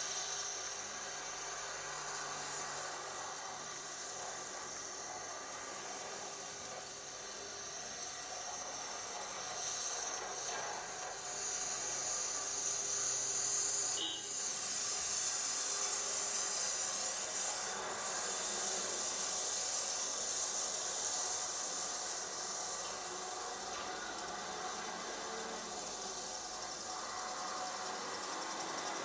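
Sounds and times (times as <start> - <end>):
steady hiss: 11.1 - 29.0.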